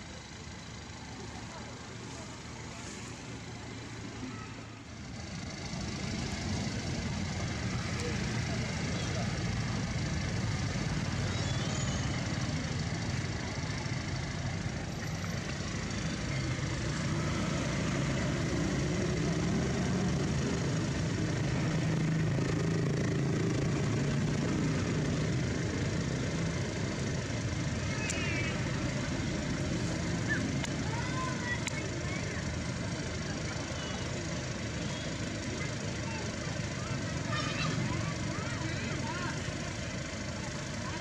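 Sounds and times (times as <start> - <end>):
low outdoor rumble: 0.0 - 41.0
faint high chirps: 11.2 - 12.2.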